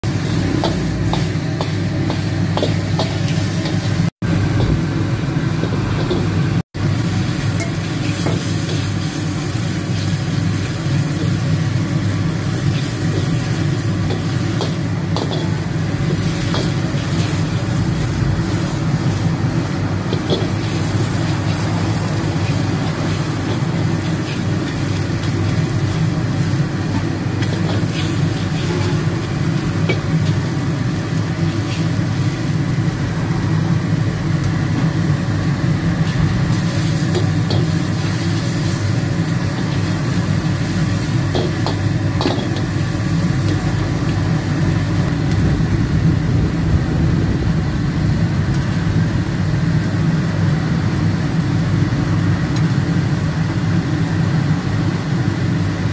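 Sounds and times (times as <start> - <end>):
food sizzling: 0.0 - 55.9
gas burner roaring: 0.0 - 55.9
ladle scraping a wok: 12.4 - 30.5.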